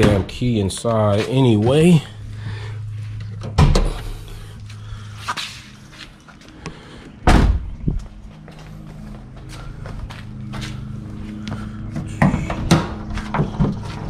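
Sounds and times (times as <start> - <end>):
low hum: 0.0 - 14.0
car door shutting thud: 7.2 - 7.7.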